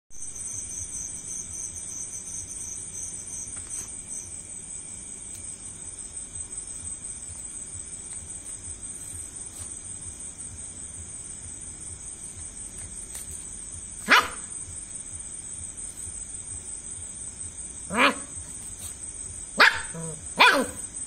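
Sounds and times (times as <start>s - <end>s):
crickets chirring: 0.1s - 21.0s
puppy barking: 14.0s - 14.5s, 17.9s - 18.5s, 19.6s - 20.9s.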